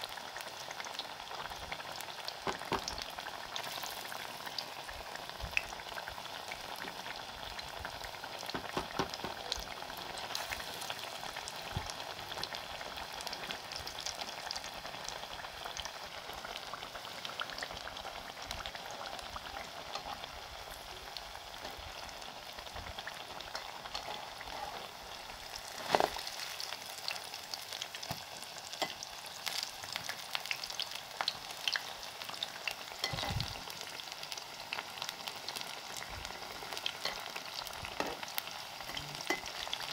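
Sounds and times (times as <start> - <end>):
deep-frying sizzle with pops: 0.0 - 39.9
loud knock: 8.6 - 9.4.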